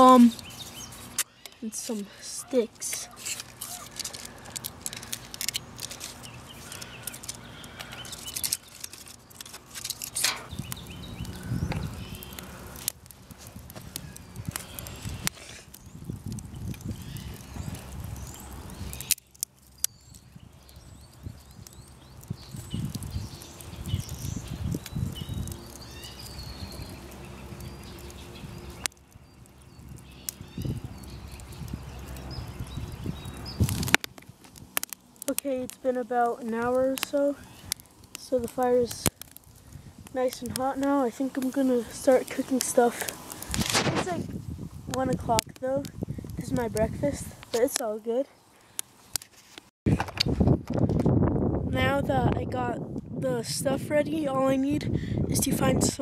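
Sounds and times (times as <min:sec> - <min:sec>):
birds chirping faintly: 0:00.0 - 0:12.9, 0:13.9 - 0:33.9
stick cracking: 0:00.1 - 0:10.9, 0:33.6 - 0:44.2
sticks clicking and knocking: 0:02.8 - 0:10.5.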